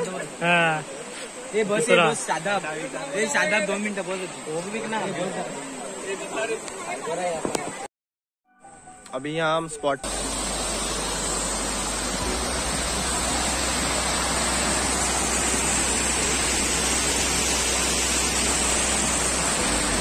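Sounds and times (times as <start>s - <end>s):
stream running over rocks: 0.0s - 7.9s, 10.0s - 20.0s
water rushing over a weir: 10.0s - 20.0s.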